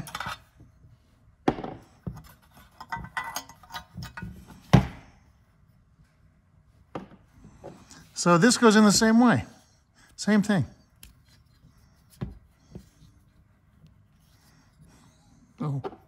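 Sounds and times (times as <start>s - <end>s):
metal parts clicking and knocking: 0.0s - 0.5s, 2.2s - 4.3s.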